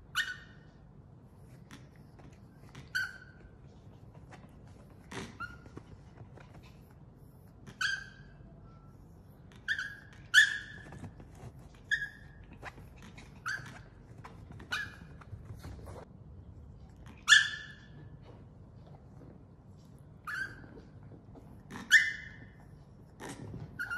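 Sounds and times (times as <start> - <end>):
small dog whining and yipping: 0.0 - 0.7, 1.8 - 3.7, 4.3 - 6.8, 7.6 - 8.5, 9.5 - 15.4, 17.1 - 18.1, 20.2 - 21.1, 21.7 - 22.7, 23.4 - 23.9.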